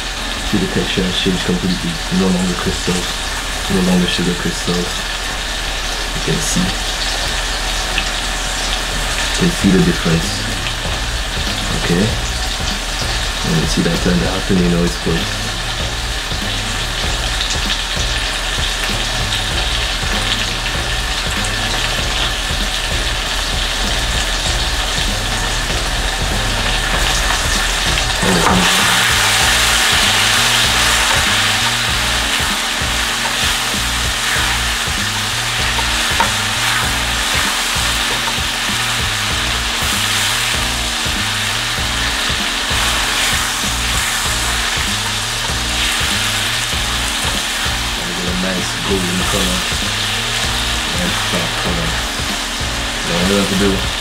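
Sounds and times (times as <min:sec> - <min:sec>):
caramel sizzling in a frying pan: 0:00.0 - 0:54.0.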